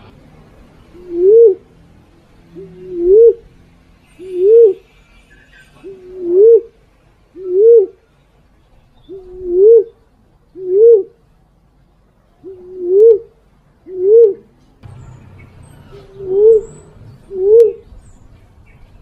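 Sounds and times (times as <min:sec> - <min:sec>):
dove hooting coo: 0:00.9 - 0:01.7, 0:02.5 - 0:03.5, 0:04.2 - 0:04.9, 0:05.8 - 0:08.0, 0:09.1 - 0:11.2, 0:12.4 - 0:14.6, 0:15.8 - 0:17.9.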